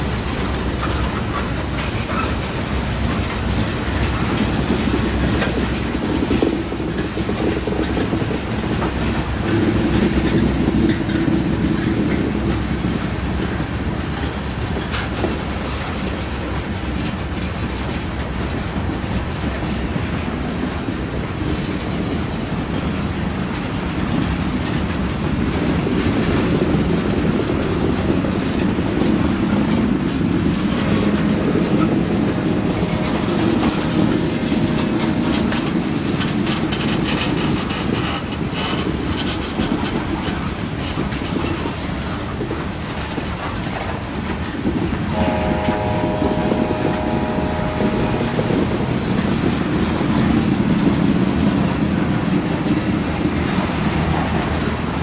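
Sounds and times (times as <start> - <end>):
train wheels clattering on rails: 0.0 - 55.0
chord of tones: 45.1 - 49.2.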